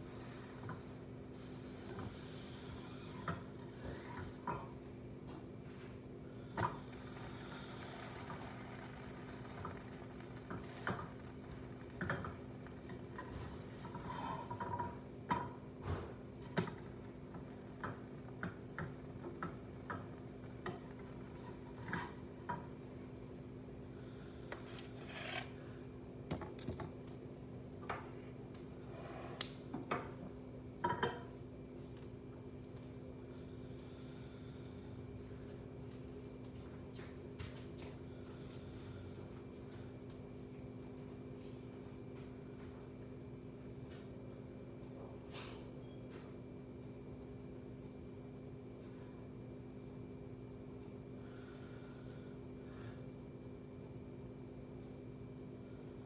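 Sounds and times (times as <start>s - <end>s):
steady low hum: 0.0s - 56.0s
spatula scraping frying pan: 24.7s - 25.5s.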